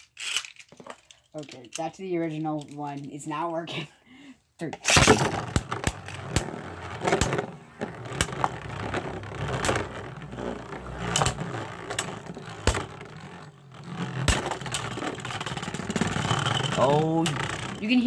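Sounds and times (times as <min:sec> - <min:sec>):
spinning tops clacking together: 0:04.8 - 0:18.0
spinning tops whirring and scraping: 0:04.9 - 0:18.0.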